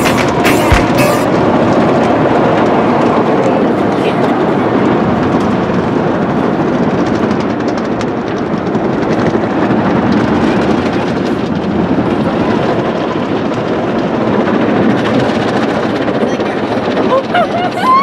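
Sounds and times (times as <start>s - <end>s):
car wash rushing: 0.0s - 18.0s.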